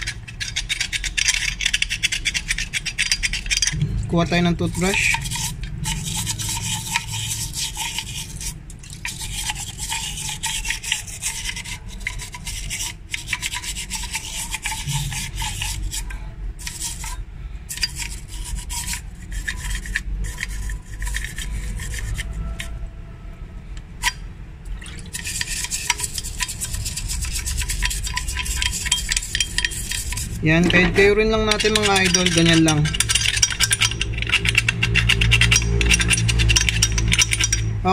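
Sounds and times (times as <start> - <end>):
toothbrush scrubbing metal pipe: 0.0 - 22.8, 25.1 - 37.8.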